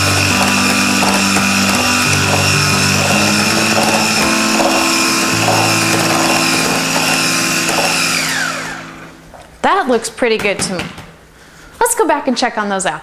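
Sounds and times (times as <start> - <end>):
electric mixer whipping batter: 0.0 - 9.2
soft background music: 0.0 - 9.9.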